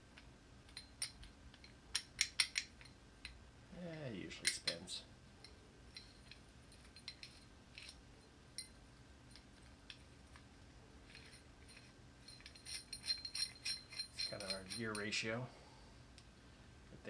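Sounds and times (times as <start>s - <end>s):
metal gears clinking: 11.0s - 15.3s.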